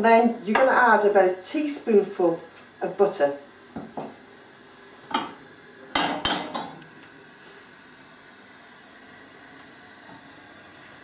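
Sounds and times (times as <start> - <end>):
knife knocking on chopping board: 3.8 - 4.2.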